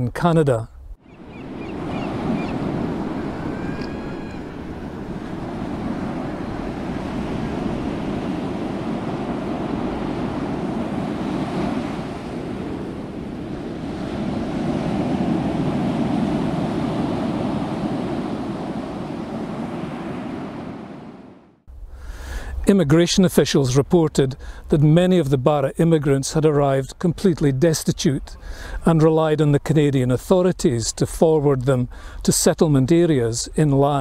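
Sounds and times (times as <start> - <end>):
wind: 0.0 - 34.0
ocean waves: 1.0 - 21.7.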